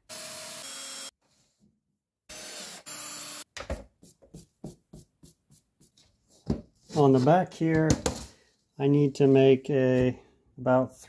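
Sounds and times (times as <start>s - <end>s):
cordless drill boring plastic: 0.1s - 1.1s, 2.3s - 3.5s.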